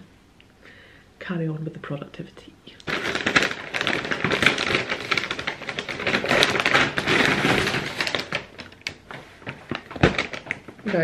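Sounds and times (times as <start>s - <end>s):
paper bags rustling: 2.8s - 11.0s.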